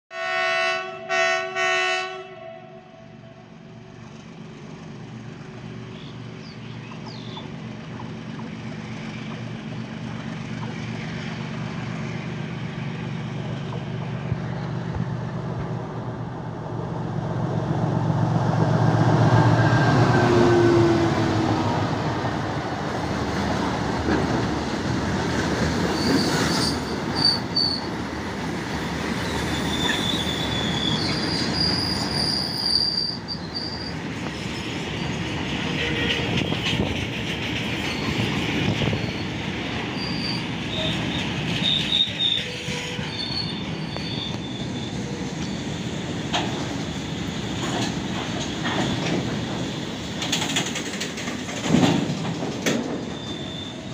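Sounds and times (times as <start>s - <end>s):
locomotive horn blasts: 0.1s - 3.4s, 35.7s - 36.5s
diesel locomotive engine passing: 0.2s - 53.9s
rumble and clatter of wagons: 22.6s - 53.9s
wheel squeals: 25.8s - 28.0s, 29.2s - 35.2s, 37.6s - 45.8s, 53.0s - 53.9s.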